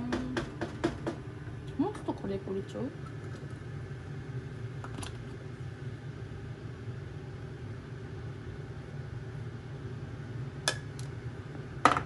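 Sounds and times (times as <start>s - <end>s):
kitchen fan humming: 0.0s - 12.0s.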